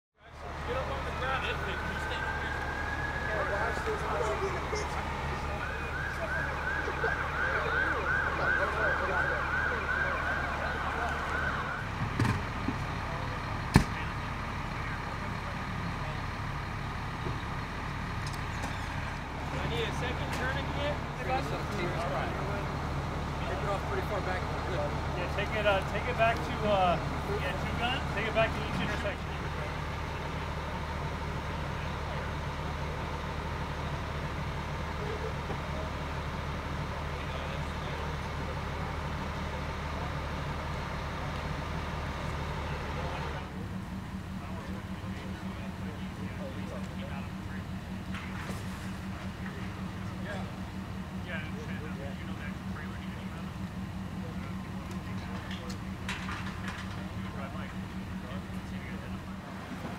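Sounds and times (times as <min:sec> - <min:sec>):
vehicle engines idling: 0:00.2 - 0:59.9
siren yelping: 0:01.0 - 0:12.0.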